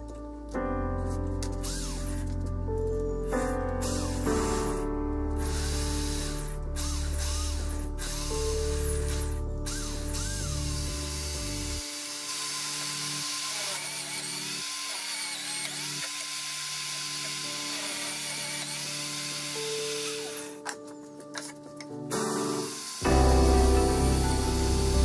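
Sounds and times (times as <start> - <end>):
background music: 0.0 - 25.0
electric drill running: 1.6 - 2.2, 3.8 - 4.8, 5.4 - 20.6, 22.2 - 25.0.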